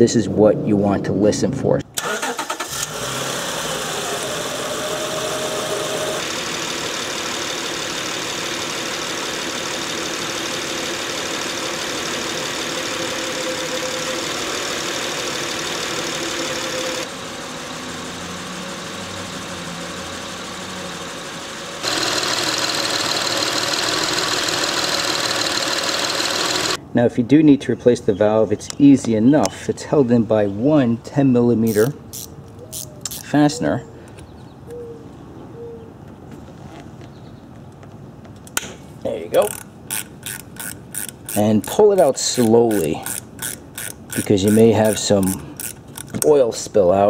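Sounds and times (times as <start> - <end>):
car engine idling: 2.3 - 26.8.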